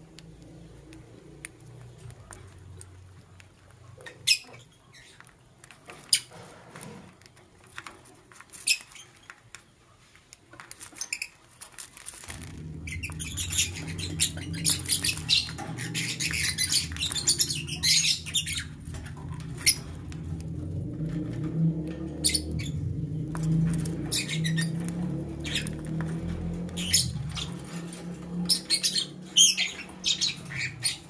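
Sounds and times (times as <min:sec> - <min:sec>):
lovebirds chirping and chattering: 0:00.0 - 0:06.5, 0:07.2 - 0:31.0
low steady hum: 0:12.0 - 0:31.0.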